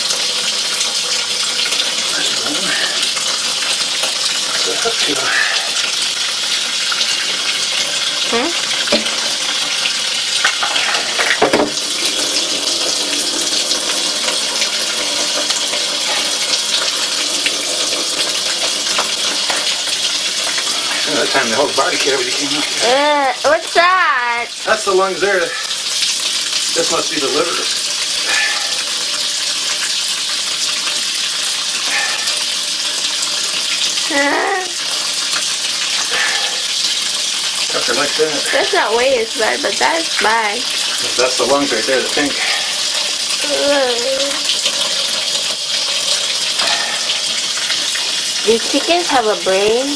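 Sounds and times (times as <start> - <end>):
tap water running into sink: 0.0 - 49.9
knocks and splashes: 11.1 - 11.8.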